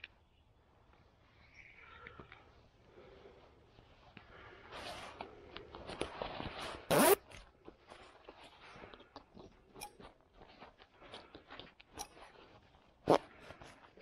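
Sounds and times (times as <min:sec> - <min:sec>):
straps rustling: 0:03.4 - 0:14.0
zipper being zipped: 0:06.9 - 0:07.2.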